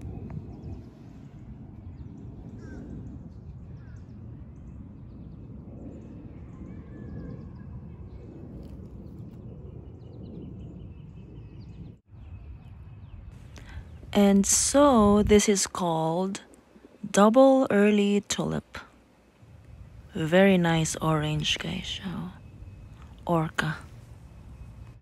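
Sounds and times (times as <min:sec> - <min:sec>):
wind rumbling on microphone: 0:00.0 - 0:25.0.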